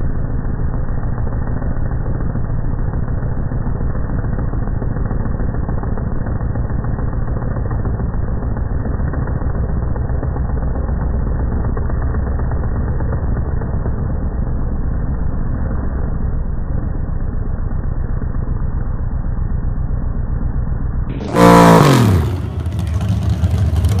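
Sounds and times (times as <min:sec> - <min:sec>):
truck engine revving: 0:21.1 - 0:24.0.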